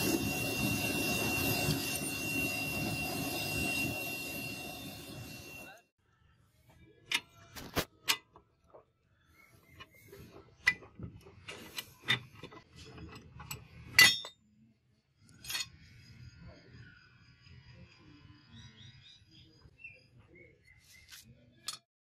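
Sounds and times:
metal clinking and clanking: 10.6s - 14.4s.

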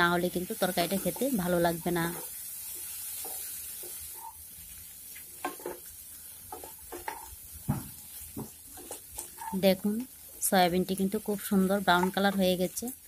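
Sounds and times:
food sizzling in oil: 0.0s - 13.0s
spatula scraping and knocking pan: 5.4s - 5.9s, 6.5s - 9.7s.

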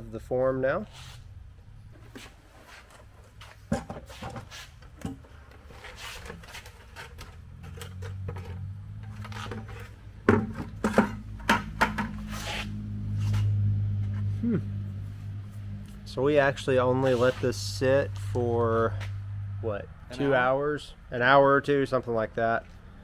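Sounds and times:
steady low hum: 0.0s - 23.0s
plastic bucket rubbing and knocking: 5.1s - 12.4s.

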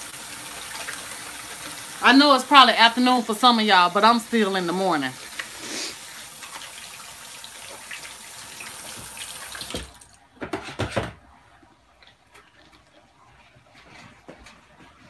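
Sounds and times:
kitchen tap running: 0.0s - 11.1s
knocks and clatters: 10.4s - 11.2s.

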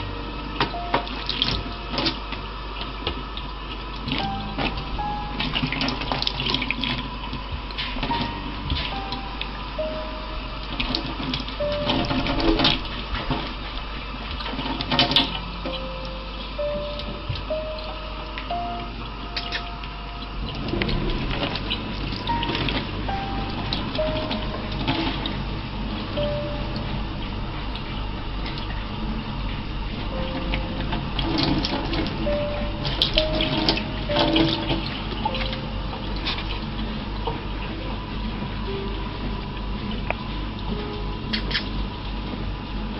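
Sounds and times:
background tune of held notes: 0.0s - 14.2s, 14.8s - 42.9s
water splashes and clicks: 0.6s - 4.8s, 5.4s - 8.9s, 10.7s - 15.8s, 30.9s - 32.2s.

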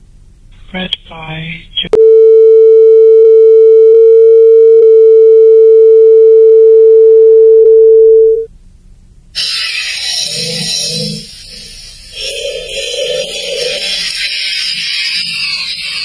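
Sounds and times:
censor bleep tone: 2.0s - 8.5s
burst of hiss: 9.4s - 16.0s.

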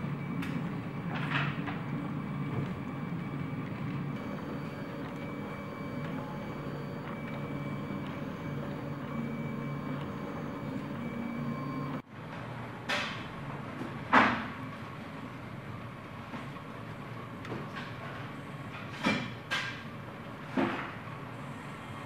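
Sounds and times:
steady high whine: 0.0s - 12.0s
stepper motors whirring: 1.9s - 12.0s.

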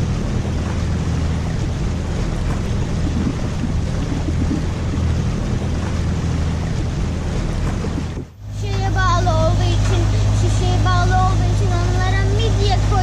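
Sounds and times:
wind buffeting microphone: 0.0s - 8.4s
water rushing along hull: 0.0s - 13.0s.

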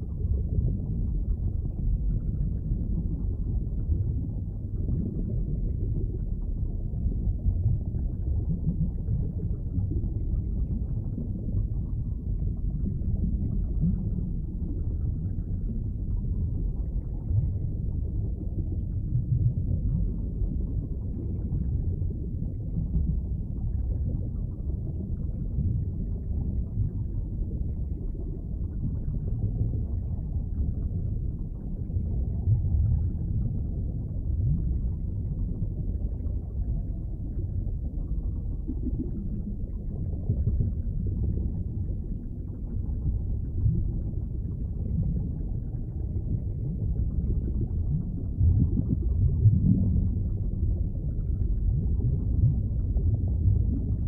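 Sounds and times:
muffled underwater rumbling: 0.0s - 54.0s.

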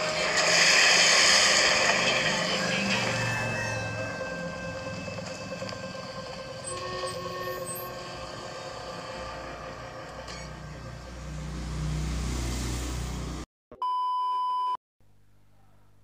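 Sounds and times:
sustained film score tones: 0.0s - 11.3s.

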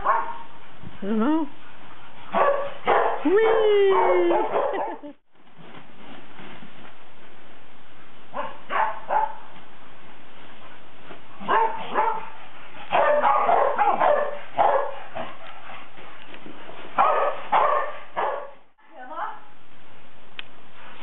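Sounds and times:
dogs barking and yipping: 0.0s - 0.6s, 2.0s - 5.2s, 8.3s - 9.5s, 11.4s - 15.9s, 16.8s - 18.7s.

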